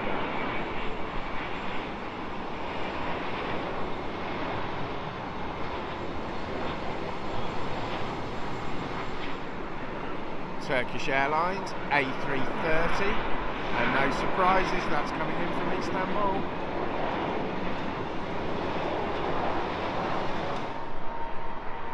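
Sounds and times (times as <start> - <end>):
jet engine roar: 0.0 - 21.9.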